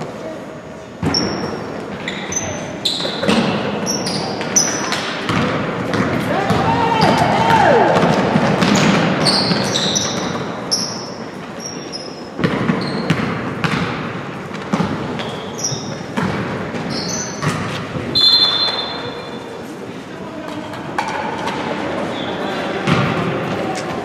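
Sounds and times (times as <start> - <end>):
sneakers squeaking: 0.8 - 24.0
basketball dribbling thuds: 5.2 - 10.5, 12.4 - 18.1
voices: 18.0 - 24.0.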